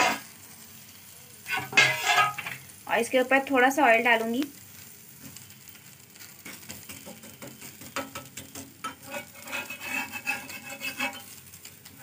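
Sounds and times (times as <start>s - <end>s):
spatula scraping iron griddle: 0.0s - 0.4s, 1.4s - 2.7s, 5.2s - 12.0s
batter sizzling: 0.0s - 12.0s.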